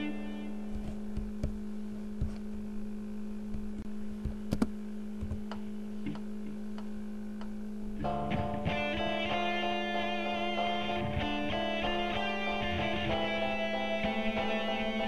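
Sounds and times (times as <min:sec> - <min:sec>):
steady low hum: 0:00.0 - 0:15.0
guitar music: 0:07.9 - 0:15.0.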